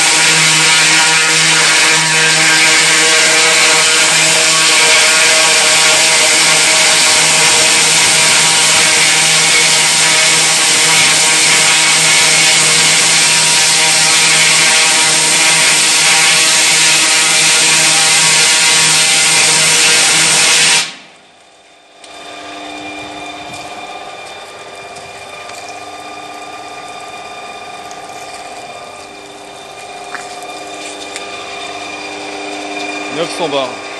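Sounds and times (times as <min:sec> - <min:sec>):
high-pressure water jet hissing: 0:00.0 - 0:21.0
pump unit humming: 0:00.0 - 0:33.9.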